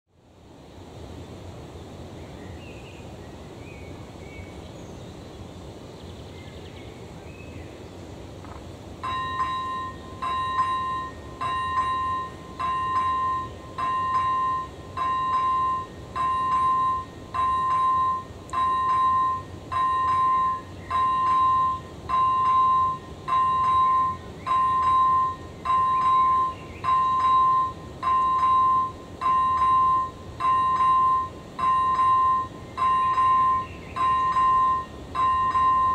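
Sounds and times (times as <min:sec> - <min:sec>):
outdoor background noise: 0:00.1 - 0:35.9
level crossing electronic bell: 0:09.0 - 0:35.9.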